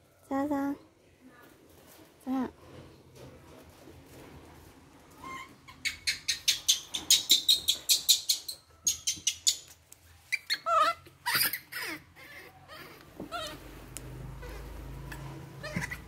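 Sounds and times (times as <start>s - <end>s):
baby monkey squeaking: 5.2s - 13.6s, 14.4s - 16.0s
monkey whining cries: 10.3s - 13.6s, 15.6s - 16.0s.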